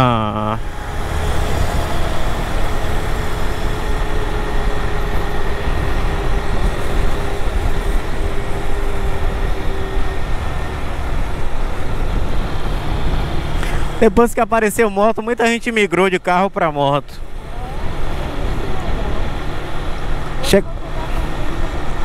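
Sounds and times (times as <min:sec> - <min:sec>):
wind and road noise: 0:00.0 - 0:22.0.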